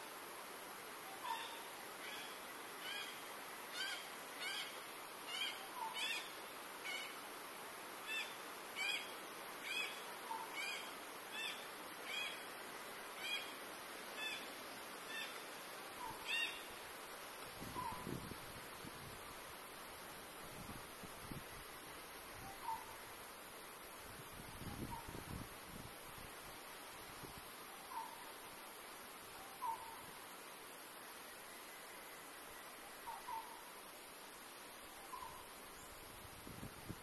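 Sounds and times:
soft low bird call: 0:17.6 - 0:18.4, 0:22.4 - 0:23.0, 0:27.8 - 0:28.3, 0:29.4 - 0:30.0, 0:32.8 - 0:33.7, 0:35.0 - 0:35.9.

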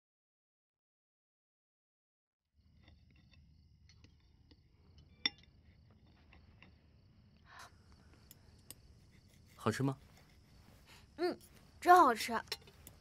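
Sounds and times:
cutlery clinking on plates: 0:12.4 - 0:13.0.

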